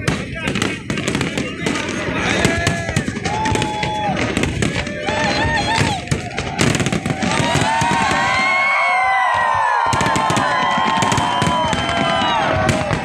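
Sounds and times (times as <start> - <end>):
fireworks bursting and crackling: 0.0 - 13.0.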